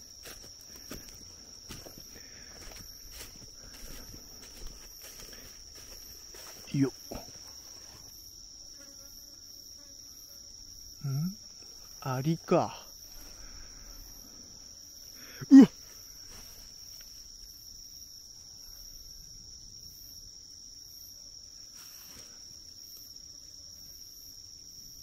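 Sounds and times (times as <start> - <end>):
insect high-pitched trill: 0.0 - 25.0.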